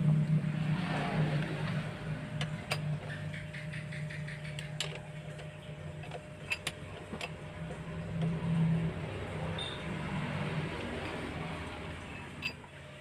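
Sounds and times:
steady low hum: 0:00.0 - 0:13.0
wrench clinking against metal: 0:12.4 - 0:12.6.

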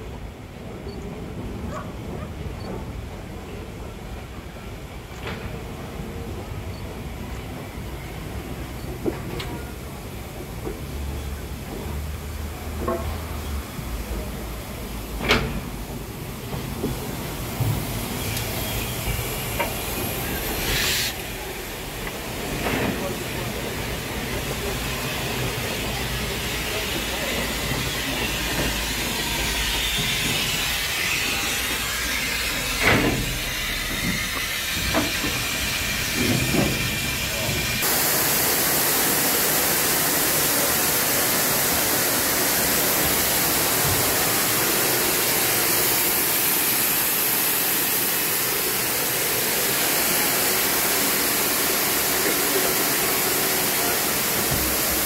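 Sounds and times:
steam locomotive clanks: 0:05.0 - 0:55.0
steam hissing: 0:12.2 - 0:55.0.

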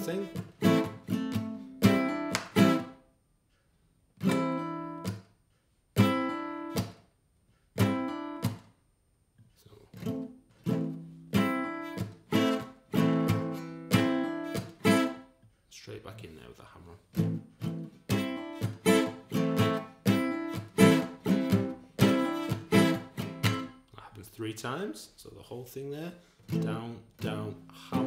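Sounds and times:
acoustic guitar strumming: 0:00.0 - 0:03.0, 0:04.2 - 0:05.2, 0:06.0 - 0:07.0, 0:07.8 - 0:08.7, 0:10.0 - 0:15.3, 0:17.1 - 0:23.9, 0:26.4 - 0:28.0.

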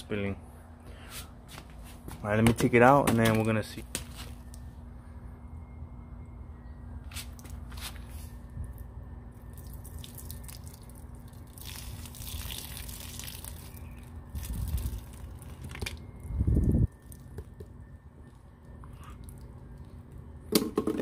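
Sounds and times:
water trickling onto concrete: 0:09.5 - 0:15.7.

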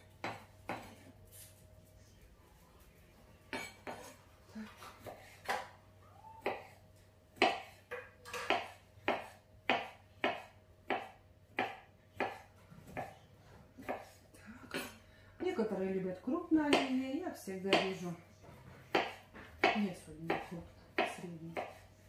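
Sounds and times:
knife chopping on wooden board: 0:00.1 - 0:01.0, 0:07.4 - 0:13.1, 0:18.8 - 0:21.8.

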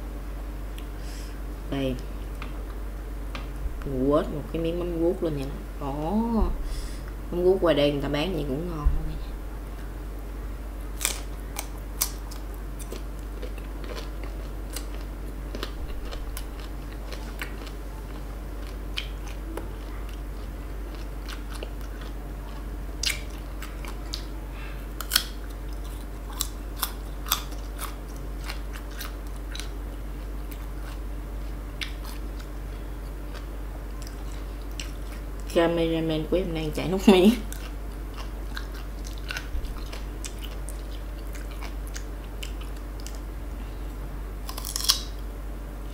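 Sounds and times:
crunchy biting of fruit: 0:44.4 - 0:45.2.

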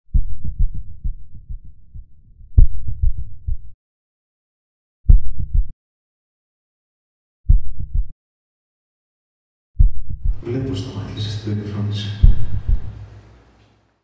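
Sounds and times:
deep low thuds: 0:00.1 - 0:03.8, 0:05.1 - 0:05.7, 0:07.5 - 0:08.1, 0:09.8 - 0:10.4, 0:12.2 - 0:13.0.

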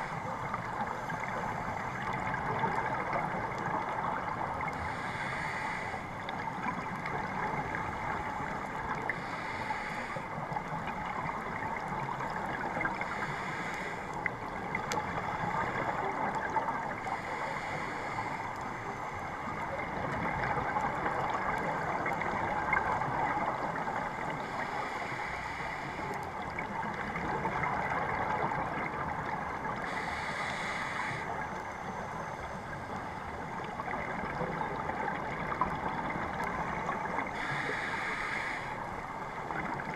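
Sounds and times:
scuba regulator breathing: 0:04.7 - 0:06.4, 0:09.1 - 0:10.4, 0:13.0 - 0:14.2, 0:17.0 - 0:19.4, 0:24.4 - 0:26.3, 0:29.8 - 0:31.5, 0:37.3 - 0:39.1.

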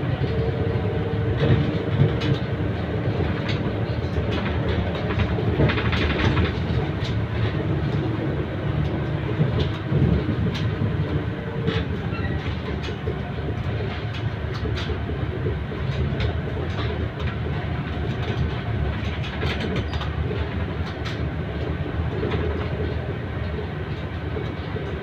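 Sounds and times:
bus engine drone: 0:00.0 - 0:25.0
road noise: 0:00.0 - 0:25.0
rattles from bus fittings: 0:01.3 - 0:25.0.

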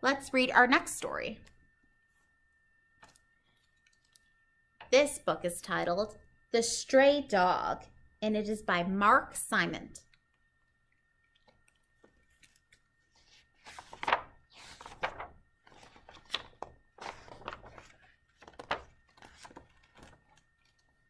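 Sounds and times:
book pages turning: 0:03.0 - 0:04.3, 0:11.3 - 0:21.0.

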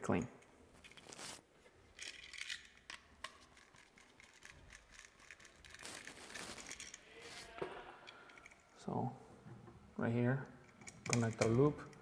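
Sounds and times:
hands rustling wires: 0:00.7 - 0:08.7.

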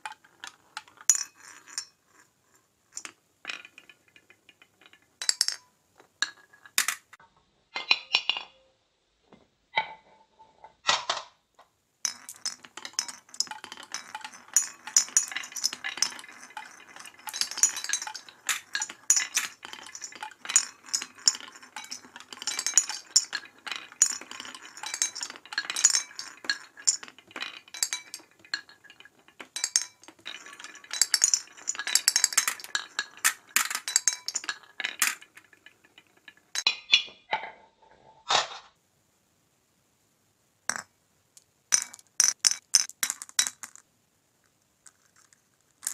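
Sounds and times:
glass marbles rolling on wooden track: 0:00.0 - 0:07.2, 0:12.0 - 0:36.7, 0:40.7 - 0:43.9, 0:44.8 - 0:45.9.

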